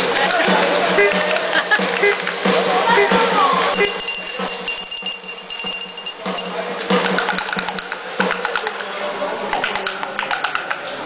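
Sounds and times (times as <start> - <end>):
brass handbell ringing: 3.8 - 7.2.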